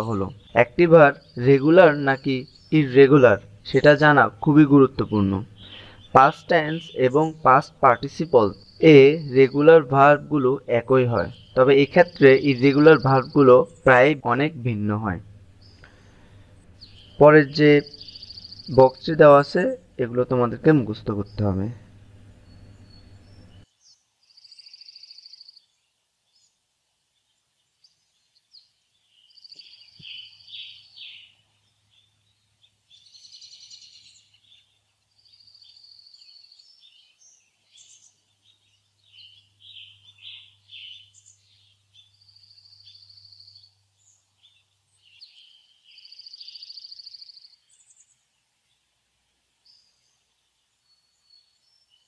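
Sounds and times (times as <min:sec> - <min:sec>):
buzzy bird trills: 0:00.0 - 0:23.6, 0:29.2 - 0:48.2.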